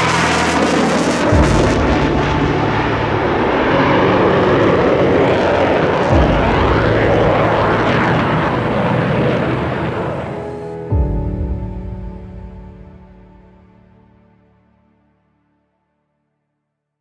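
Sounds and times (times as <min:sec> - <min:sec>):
fighter jet roar: 0:00.0 - 0:10.9
low orchestral chords: 0:00.0 - 0:15.5.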